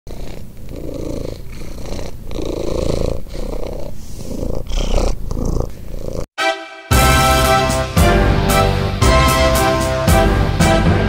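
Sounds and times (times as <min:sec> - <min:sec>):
cat purring: 0:00.1 - 0:06.3.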